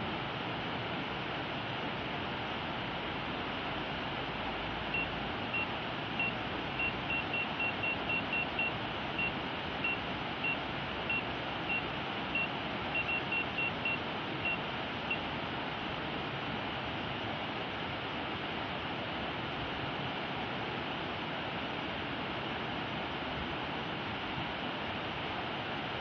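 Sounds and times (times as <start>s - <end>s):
short high electronic beeps: 5.0s - 15.2s.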